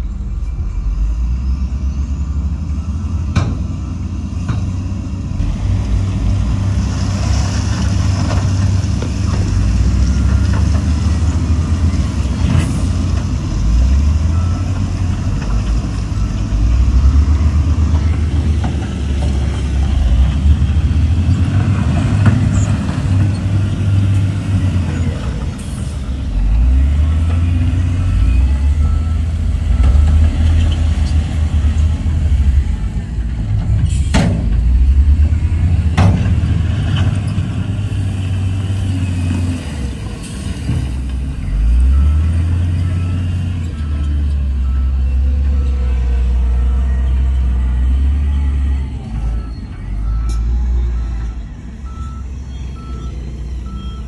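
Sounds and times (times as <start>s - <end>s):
heavy diesel engines revving: 0.0s - 54.0s.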